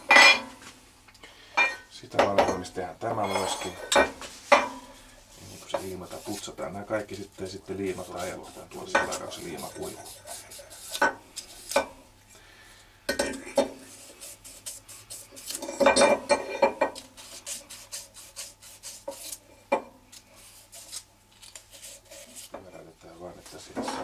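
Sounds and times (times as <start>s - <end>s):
metal rubbing on stone: 3.2s - 4.0s, 7.7s - 11.9s, 13.5s - 19.5s.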